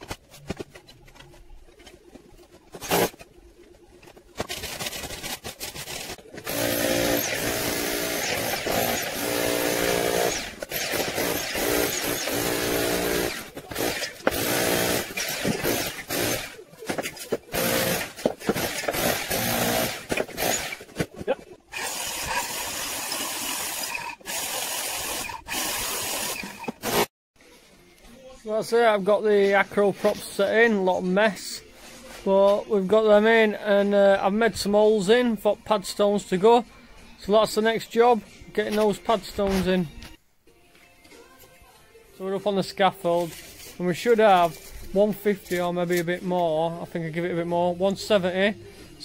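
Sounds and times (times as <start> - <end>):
power tool cutting brickwork: 2.8 - 3.2, 4.7 - 20.9, 21.7 - 27.1.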